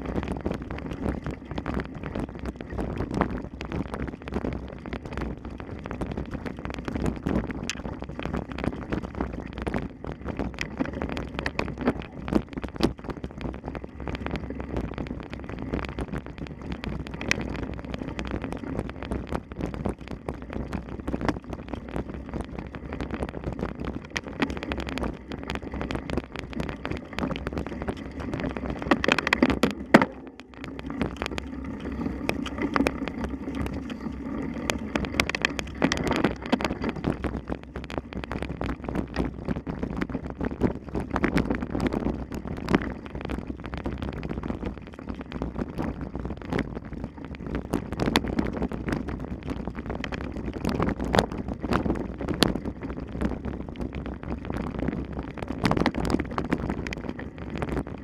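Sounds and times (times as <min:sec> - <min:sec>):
wind noise on microphone: 0:00.0 - 0:58.0
bicycle rattling over rough ground: 0:07.4 - 0:43.6.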